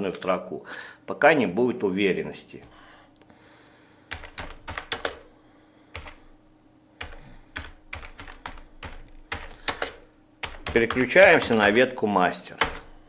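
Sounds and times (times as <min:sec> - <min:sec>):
keyboard keystroke clicks: 0:04.1 - 0:05.2, 0:06.0 - 0:06.2, 0:07.0 - 0:11.8, 0:12.6 - 0:12.9.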